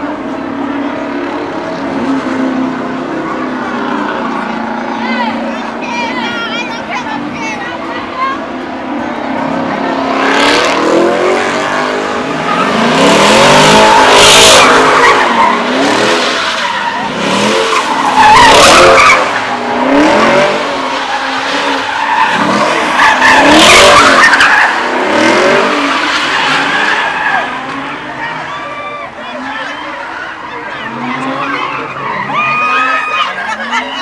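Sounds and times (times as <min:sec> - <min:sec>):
car engine revving: 0:00.0 - 0:34.0
tyres squealing: 0:11.7 - 0:34.0.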